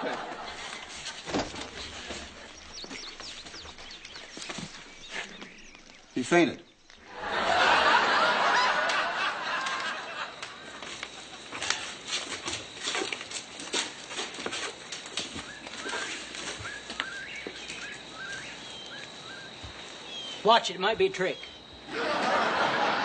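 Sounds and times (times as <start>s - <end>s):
footsteps on wooden porch: 0.0s - 6.1s, 9.6s - 21.9s
birds chirping: 0.0s - 23.0s
studio audience laughter: 7.1s - 11.3s, 21.9s - 23.0s.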